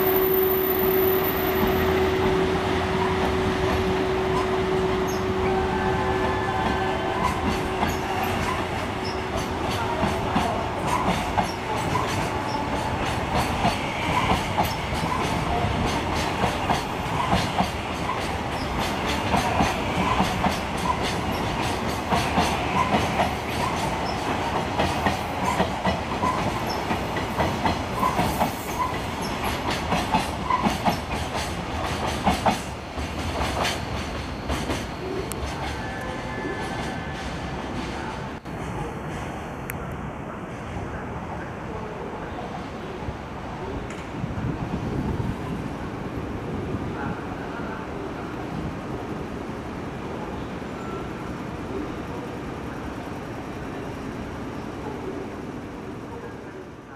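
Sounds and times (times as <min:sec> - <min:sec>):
freight train rumble: 0:00.0 - 0:56.9
train wheels clattering over rail joints: 0:07.2 - 0:35.8.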